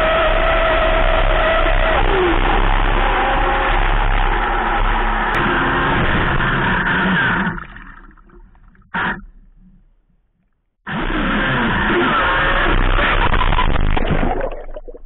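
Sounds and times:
electric boat motor: 0:00.0 - 0:07.6, 0:10.9 - 0:13.4
boat crashing: 0:01.7 - 0:10.0
loud splash: 0:13.2 - 0:15.0.

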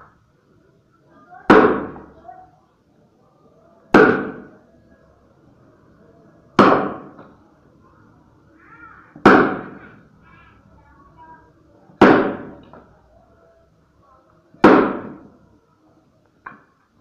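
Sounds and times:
axe chopping log: 0:01.5 - 0:02.0, 0:03.9 - 0:04.5, 0:06.6 - 0:07.2, 0:09.2 - 0:09.8, 0:12.0 - 0:12.8, 0:14.6 - 0:15.3.

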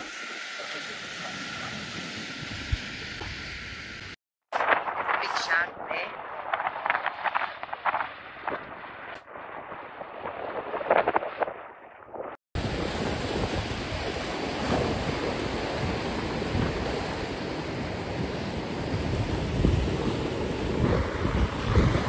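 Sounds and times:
surf breaking on beach: 0:12.2 - 0:22.0
wind buffeting microphone: 0:12.6 - 0:22.0.

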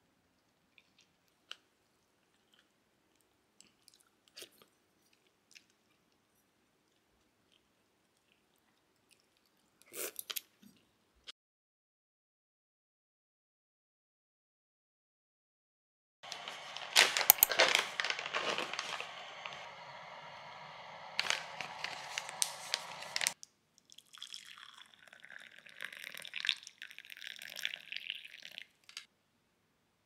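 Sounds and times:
soft liquid sounds: 0:22.0 - 0:29.1
water pouring into glass mug: 0:23.1 - 0:28.9.

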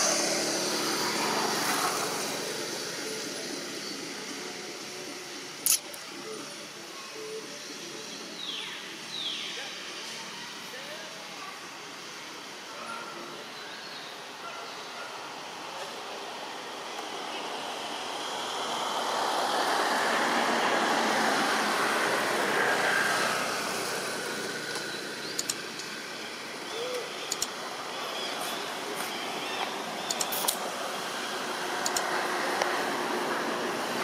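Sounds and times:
traffic rushing: 0:00.0 - 0:34.0
faint scattered clicks: 0:24.7 - 0:26.0, 0:26.9 - 0:27.6, 0:29.0 - 0:30.6, 0:31.8 - 0:32.7.

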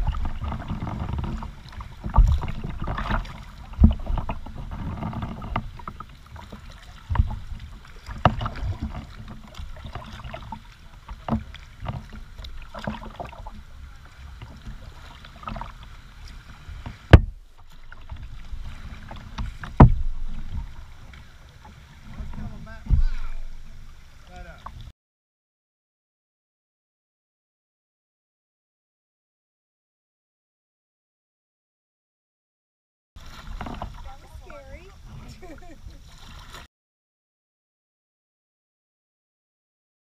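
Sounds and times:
paddle knocking on hull: 0:00.0 - 0:24.8, 0:33.2 - 0:36.4
paddle splashing in water: 0:00.0 - 0:24.9, 0:33.2 - 0:36.7.

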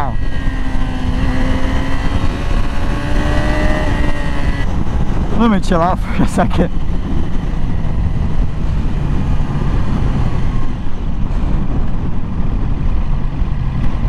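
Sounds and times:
motorcycle engine running: 0:00.0 - 0:14.0
wind rush: 0:00.0 - 0:14.0.

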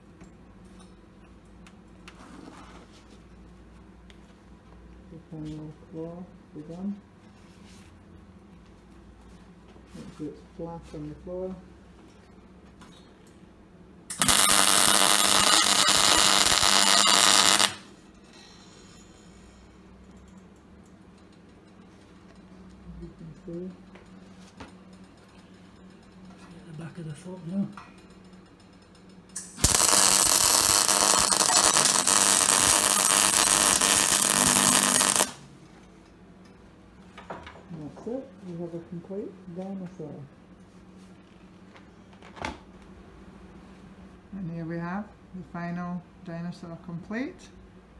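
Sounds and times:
welding arc crackling: 0:14.1 - 0:17.9, 0:29.4 - 0:35.4.

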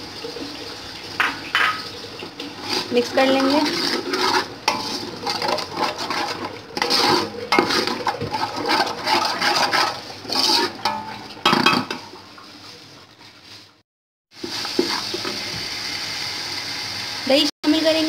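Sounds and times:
hot oil sizzling: 0:00.0 - 0:18.0
wooden spatula scraping metal pot: 0:02.3 - 0:12.2.

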